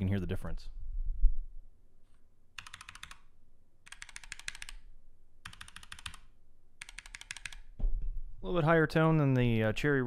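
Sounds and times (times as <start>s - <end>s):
mechanical keyboard typing: 2.6s - 7.7s
microphone thump: 7.8s - 8.2s.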